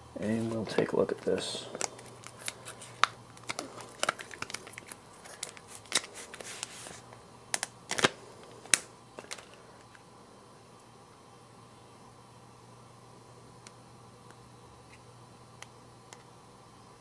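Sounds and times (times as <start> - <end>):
plastic sleeve crinkling: 0.2 - 7.0.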